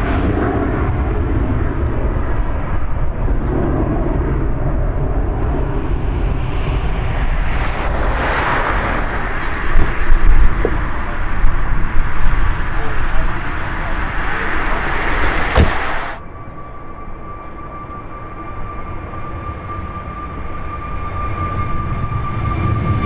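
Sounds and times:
wind buffeting microphone: 0.0s - 16.2s
jet engines deep rumble: 0.0s - 23.0s.

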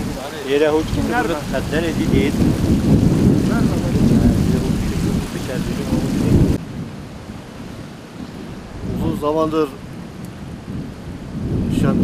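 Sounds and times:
wind buffeting microphone: 0.0s - 12.0s
faint men's voices: 3.3s - 6.6s.

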